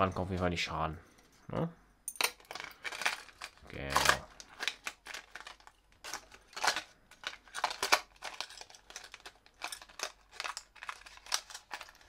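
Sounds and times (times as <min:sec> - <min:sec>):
plastic packaging rustling: 0:02.4 - 0:12.0.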